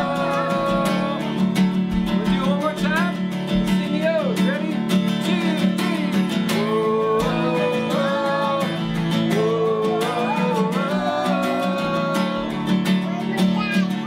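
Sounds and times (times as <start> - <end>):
voices singing: 0.0 - 2.6, 5.1 - 13.1
acoustic guitar strumming: 0.0 - 14.0.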